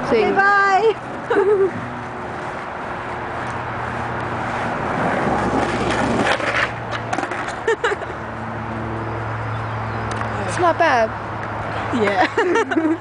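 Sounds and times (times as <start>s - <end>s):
skateboard wheels rolling on asphalt: 0.0s - 13.0s
skateboard clicks: 5.3s - 7.6s.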